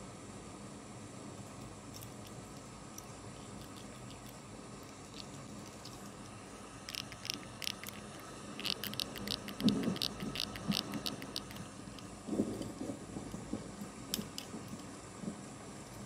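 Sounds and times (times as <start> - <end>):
toy car squeaking: 6.9 - 11.6.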